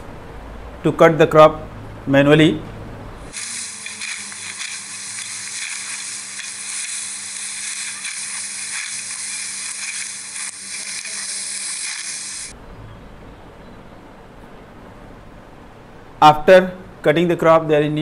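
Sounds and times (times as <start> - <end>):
steady hiss: 3.3 - 12.6.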